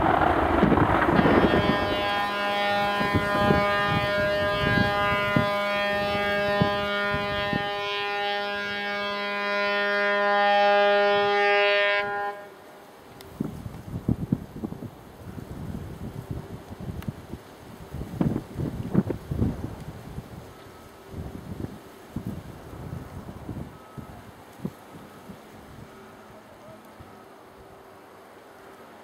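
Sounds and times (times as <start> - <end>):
low thumps: 0.0 - 2.4
steady siren: 0.1 - 12.5, 22.2 - 27.8.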